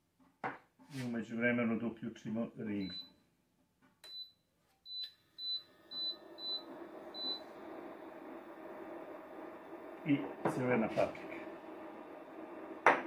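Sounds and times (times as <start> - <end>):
cooling fan whirring: 6.0 - 13.0.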